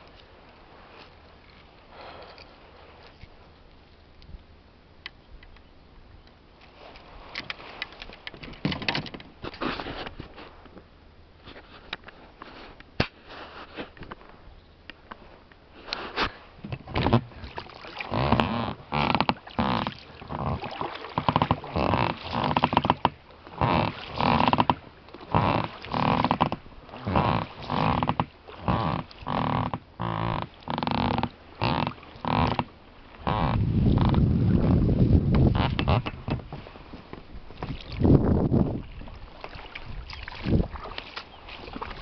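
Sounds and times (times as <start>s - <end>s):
oars creaking in rowlocks: 6.6s - 10.1s, 16.6s - 38.0s.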